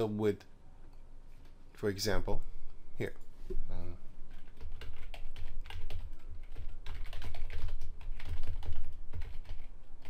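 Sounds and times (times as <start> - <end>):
fast keyboard typing: 4.3 - 10.0.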